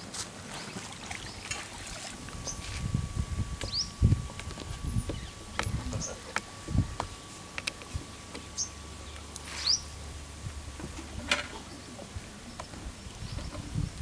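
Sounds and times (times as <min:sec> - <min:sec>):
low hum: 0:00.4 - 0:14.0
bird chirping: 0:03.6 - 0:04.0, 0:08.4 - 0:09.9.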